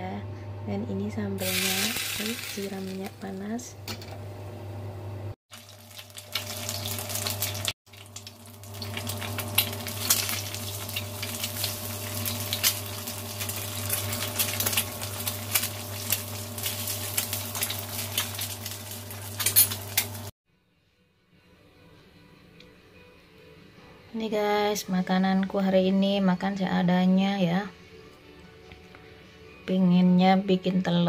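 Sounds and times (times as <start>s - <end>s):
egg sizzling in hot oil: 1.4s - 3.1s, 5.5s - 20.3s
oil crackling and popping: 1.4s - 3.2s, 5.5s - 20.3s.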